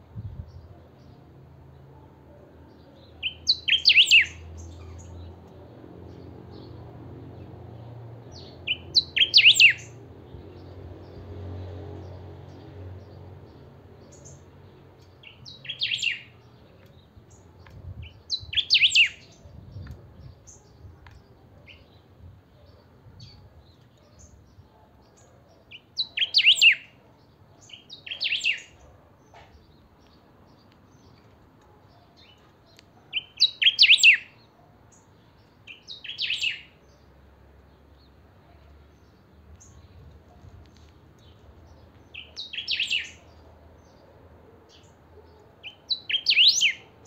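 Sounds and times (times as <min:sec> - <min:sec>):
bird singing loud phrases: 0:02.7 - 0:05.5, 0:08.3 - 0:11.3, 0:12.1 - 0:31.2, 0:31.9 - 0:38.2, 0:40.7 - 0:44.1, 0:44.7 - 0:47.0.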